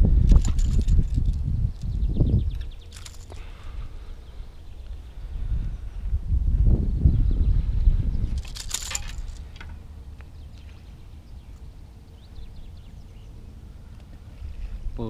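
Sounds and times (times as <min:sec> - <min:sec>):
wind rumbling on microphone: 0:00.0 - 0:15.0
brief rustle: 0:00.3 - 0:03.8, 0:08.3 - 0:09.8.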